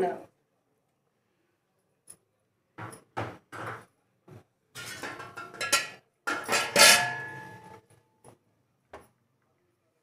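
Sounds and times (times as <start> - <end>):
metal spoon scraping a pot: 4.8 - 7.8.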